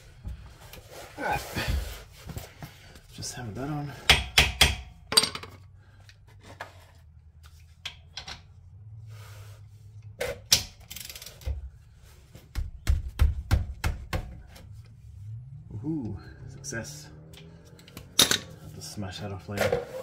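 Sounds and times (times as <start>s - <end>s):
metal tools clicking and clanking: 4.2s - 5.6s, 17.7s - 18.6s.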